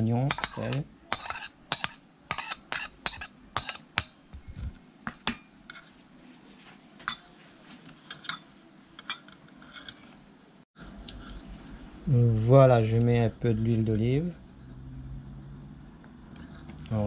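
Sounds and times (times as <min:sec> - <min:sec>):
metal spoon clinking on ceramic plate: 0:00.3 - 0:04.2, 0:07.0 - 0:07.3, 0:08.1 - 0:09.9.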